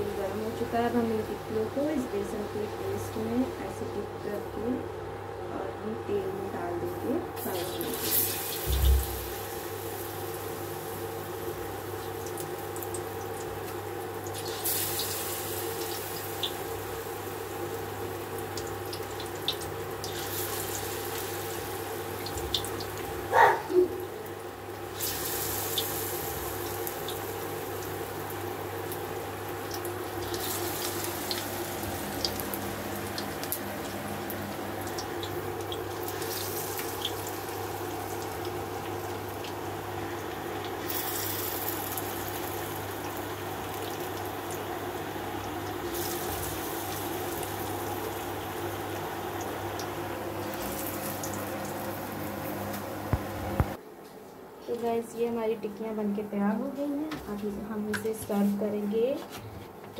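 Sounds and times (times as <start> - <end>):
food deep-frying in oil: 7.0 - 53.8
thump: 8.7 - 9.2.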